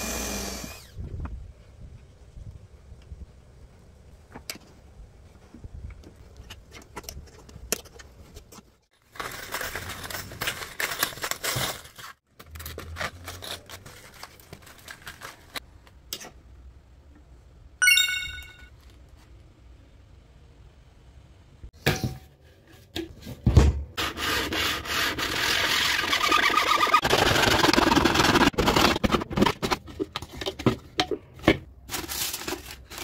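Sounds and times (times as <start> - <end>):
crinkling rattling plastic: 9.0 - 15.6
short bright chime: 17.8 - 18.7.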